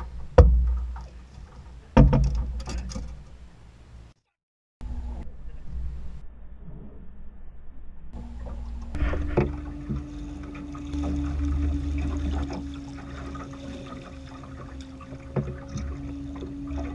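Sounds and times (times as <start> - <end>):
water splashing against boat hull: 0.0 - 3.4, 8.2 - 16.9
knocks against boat: 0.3 - 1.1, 2.0 - 3.0, 14.8 - 16.5
low motor hum: 4.8 - 16.9.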